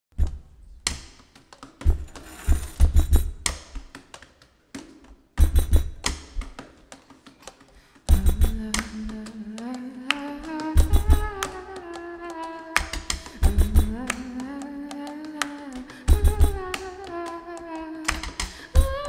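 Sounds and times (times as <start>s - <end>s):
beatboxing into a microphone: 5.4s - 19.0s
person humming a held note: 8.2s - 19.0s.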